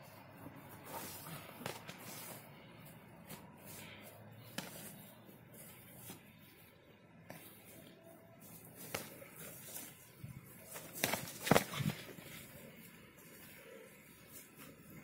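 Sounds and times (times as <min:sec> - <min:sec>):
boxing gloves slapping: 0:10.6 - 0:12.2.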